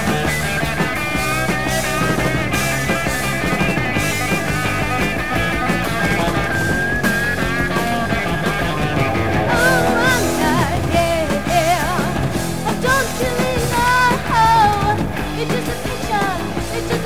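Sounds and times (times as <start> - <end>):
punk rock band: 0.0 - 17.0
wavering high melody line: 8.8 - 13.2.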